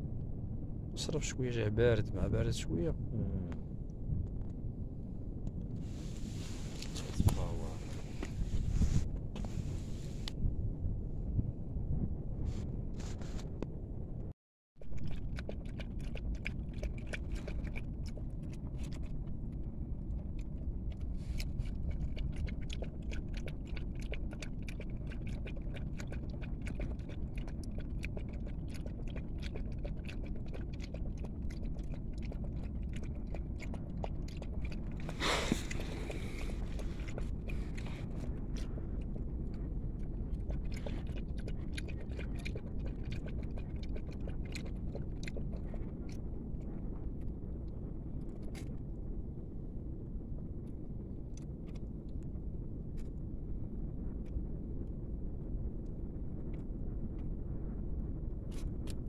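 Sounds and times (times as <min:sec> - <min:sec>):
low rumble: 0:00.0 - 0:59.0
scrape: 0:05.8 - 0:10.3, 0:12.5 - 0:13.5
puppy licking and chewing: 0:14.8 - 0:48.9, 0:50.6 - 0:52.2, 0:58.5 - 0:59.0.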